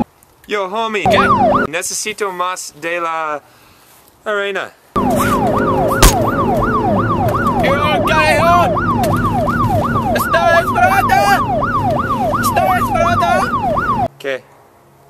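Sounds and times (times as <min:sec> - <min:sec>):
siren wailing: 0:01.1 - 0:01.7, 0:05.0 - 0:14.1.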